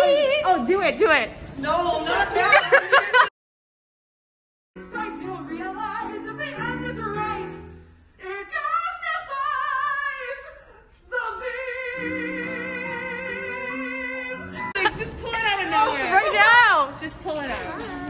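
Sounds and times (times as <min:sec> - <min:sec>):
woman singing opera-like: 0:08.2 - 0:14.7.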